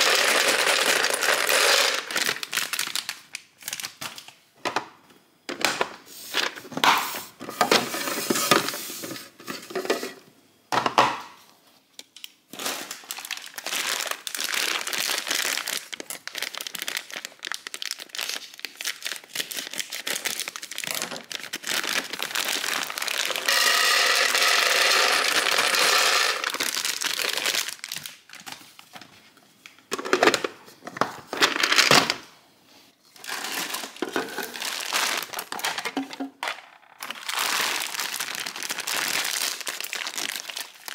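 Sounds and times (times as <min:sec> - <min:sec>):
dry pasta rattling in plastic container: 0:00.0 - 0:03.1, 0:12.6 - 0:28.0, 0:33.2 - 0:40.9
plastic packet crinkling: 0:00.0 - 0:04.4, 0:12.5 - 0:29.1, 0:33.2 - 0:40.9.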